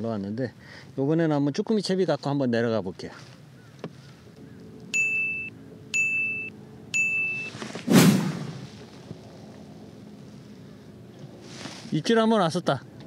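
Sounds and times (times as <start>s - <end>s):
short high electronic beeps: 5.0s - 7.6s
fishing rod whoosh: 7.5s - 8.8s.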